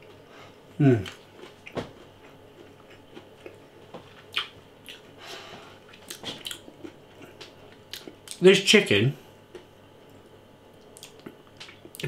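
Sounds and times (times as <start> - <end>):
chewing crispy food: 1.0 - 5.2, 5.8 - 8.4, 10.8 - 12.0
breath: 5.2 - 5.8.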